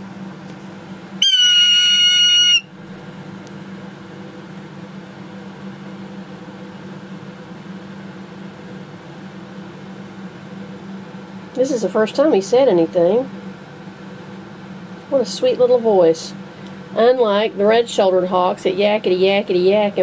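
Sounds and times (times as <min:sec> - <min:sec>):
steady low hum: 0:00.0 - 0:20.0
hawk call: 0:01.2 - 0:02.8.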